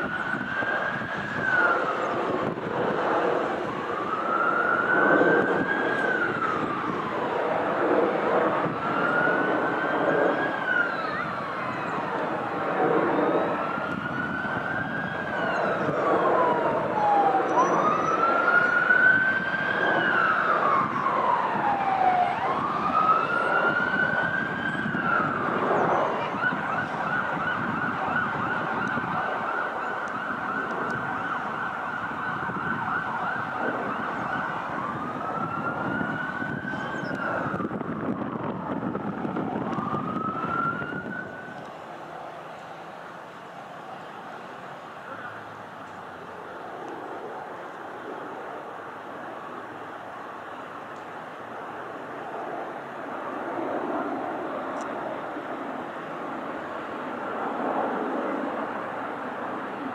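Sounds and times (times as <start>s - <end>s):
emergency vehicle siren wailing: 0.0s - 59.9s.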